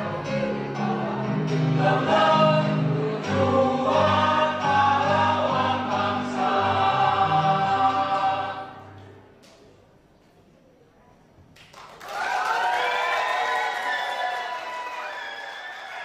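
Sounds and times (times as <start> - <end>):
mixed choir singing in harmony: 0.0 - 9.1.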